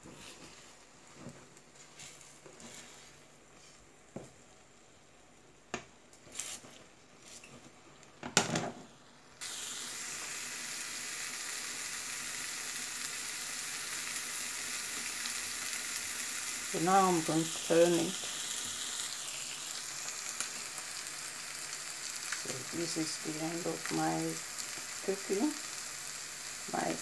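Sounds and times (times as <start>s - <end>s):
omelette sizzling: 8.9s - 27.0s.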